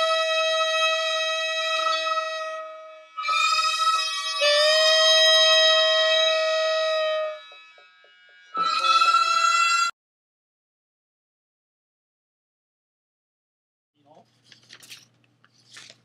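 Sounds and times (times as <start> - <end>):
bamboo flute playing slow notes: 0.0 - 9.9.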